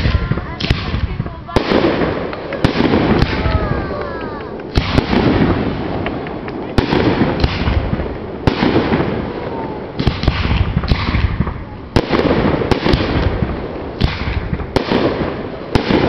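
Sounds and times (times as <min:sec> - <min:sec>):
fireworks bursting: 0:00.0 - 0:16.0.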